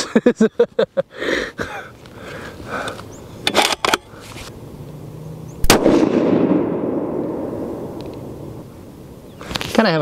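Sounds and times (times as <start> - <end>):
rifle shot with echo: 5.6 - 8.0.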